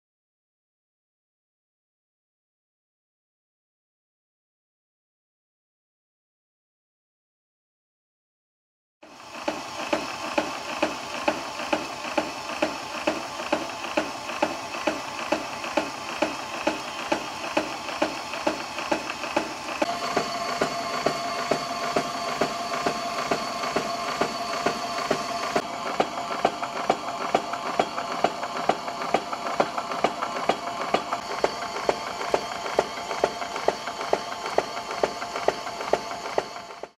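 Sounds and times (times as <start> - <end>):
power hacksaw motor whine: 9.3 - 36.9.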